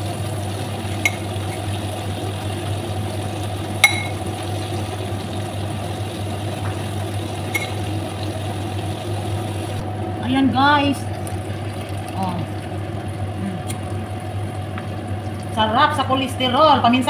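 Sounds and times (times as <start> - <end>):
low hum: 0.0 - 14.5
oil sizzling and bubbling: 0.0 - 17.0.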